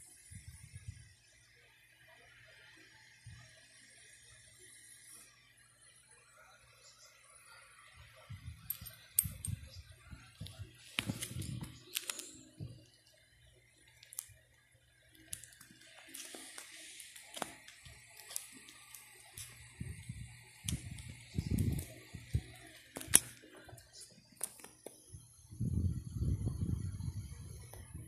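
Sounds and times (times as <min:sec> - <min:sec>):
coins clicking: 0:08.7 - 0:09.5
plastic sleeves crinkling: 0:10.6 - 0:12.5, 0:15.2 - 0:19.6.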